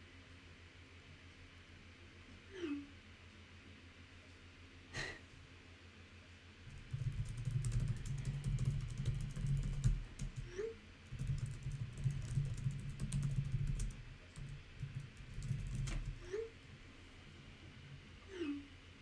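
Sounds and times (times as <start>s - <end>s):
fast typing on keyboard: 6.7s - 16.3s.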